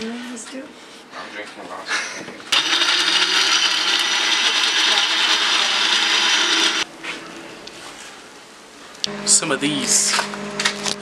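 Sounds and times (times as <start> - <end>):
countertop blender running: 2.5 - 6.8.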